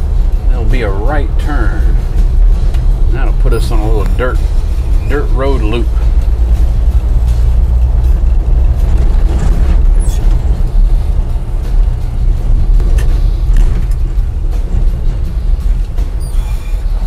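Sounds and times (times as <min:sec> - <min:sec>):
pickup truck engine rumble: 0:00.0 - 0:17.0
wind buffeting camera: 0:07.0 - 0:16.1.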